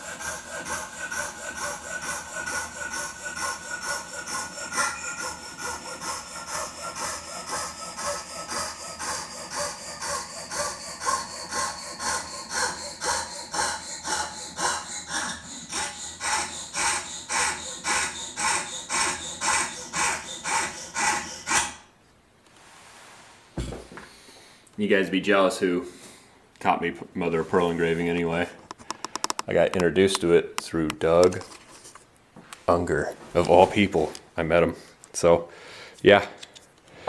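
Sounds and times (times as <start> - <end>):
hand saw cutting shell: 0.0 - 21.9.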